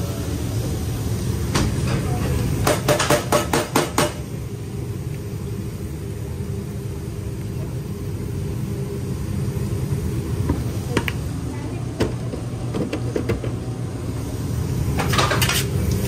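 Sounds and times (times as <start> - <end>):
low kitchen rumble: 0.0 - 16.0.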